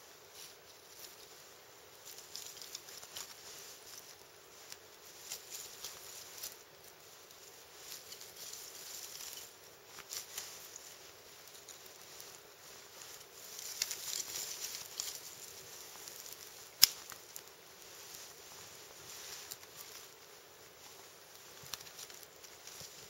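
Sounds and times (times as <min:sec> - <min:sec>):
campfire crackling and popping: 0:13.5 - 0:17.6
sharp crack of fire: 0:16.6 - 0:17.3.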